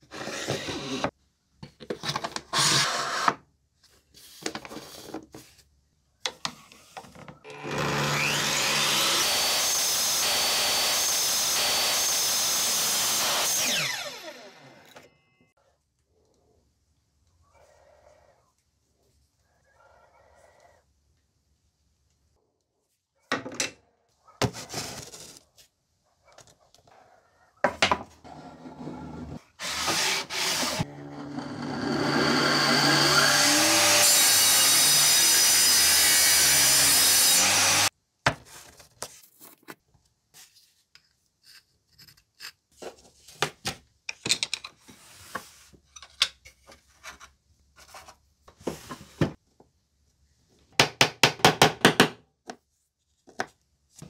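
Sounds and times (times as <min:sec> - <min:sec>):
power saw cutting wood: 0:07.5 - 0:15.0, 0:28.6 - 0:37.9.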